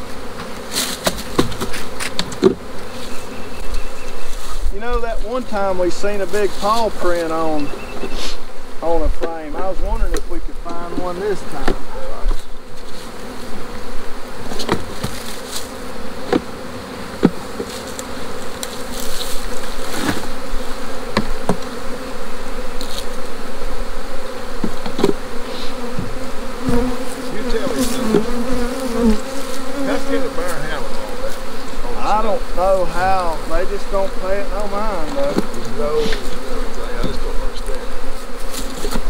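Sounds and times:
knocks of wooden hive frames: 0.0s - 2.9s, 9.0s - 22.1s, 24.4s - 37.3s, 37.9s - 39.0s
honeybees buzzing: 0.0s - 39.0s.

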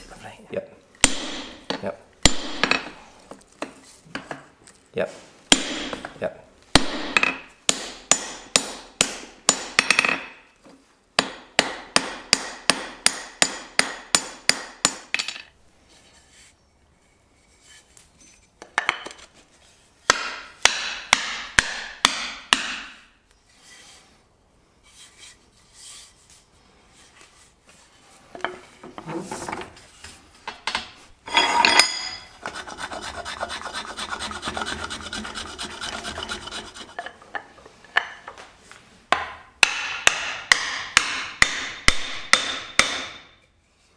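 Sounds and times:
hammer striking steel on anvil: 1.0s - 3.0s, 6.8s - 10.4s, 11.2s - 15.4s, 20.1s - 23.0s, 39.2s - 43.4s
file rasping on wooden handle: 32.4s - 37.2s.

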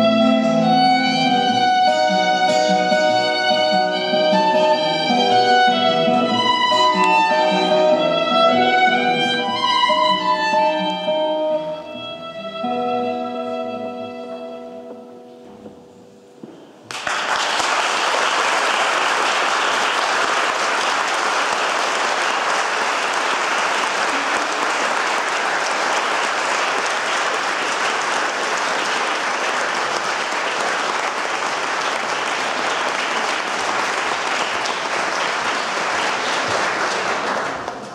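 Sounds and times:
audience applauding: 16.9s - 37.9s.

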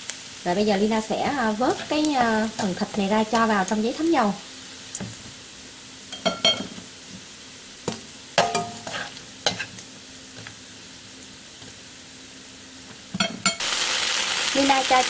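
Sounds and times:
hot fat sizzling: 0.0s - 15.0s
wire strainer scraping a wok: 1.6s - 3.5s, 8.6s - 9.8s.

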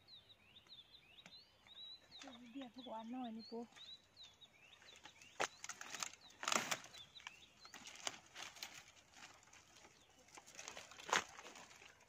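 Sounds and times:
small birds chirping: 0.0s - 12.0s
rustles in dry undergrowth: 3.8s - 12.0s.

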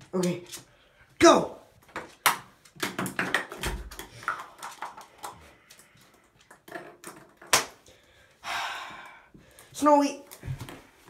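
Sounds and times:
plastic cap clattering on floor: 2.2s - 5.4s, 6.5s - 7.9s.

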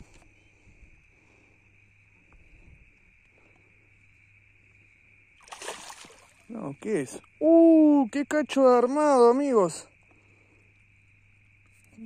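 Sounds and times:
night insects droning: 0.0s - 12.0s.

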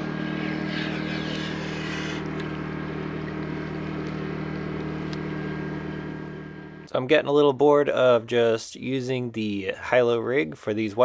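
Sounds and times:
low engine hum: 0.0s - 6.9s.

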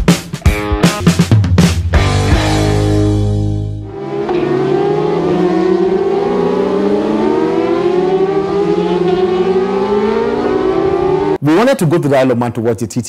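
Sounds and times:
background music: 0.0s - 11.5s
racing motorcycles at high revs: 3.9s - 11.4s.

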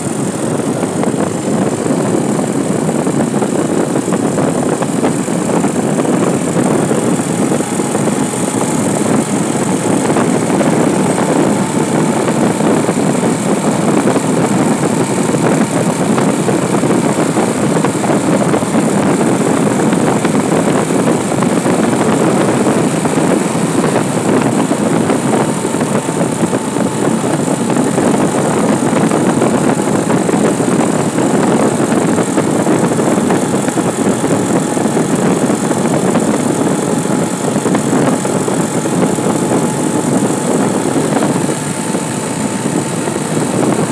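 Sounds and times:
vehicle engine and road noise: 0.0s - 43.9s.

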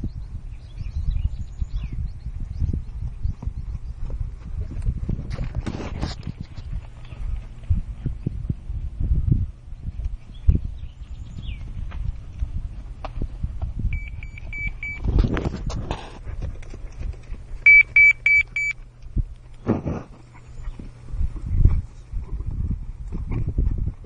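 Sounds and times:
horse hooves thudding on sand: 1.8s - 8.7s, 9.9s - 17.7s
high electronic beeps: 14.0s - 15.0s.

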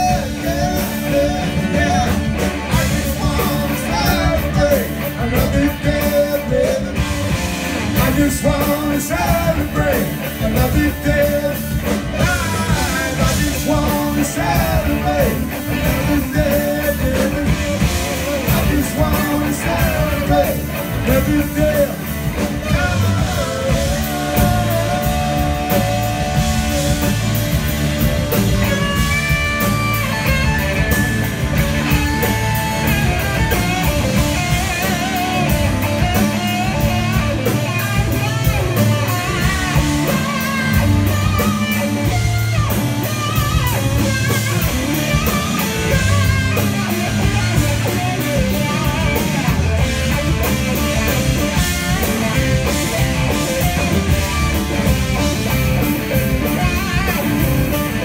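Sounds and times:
drums: 0.0s - 58.0s
electric bass: 0.0s - 58.0s
electric guitars: 0.0s - 58.0s
electric mandolin: 14.4s - 58.0s.

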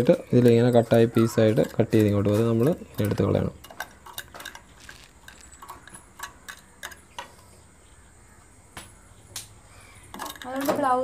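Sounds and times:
clicks and taps on metal parts: 0.0s - 7.4s.

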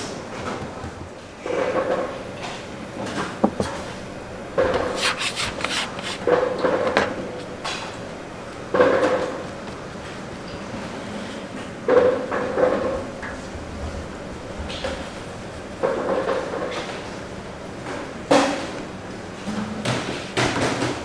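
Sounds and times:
rubbing strokes on wooden surface: 4.9s - 6.2s.

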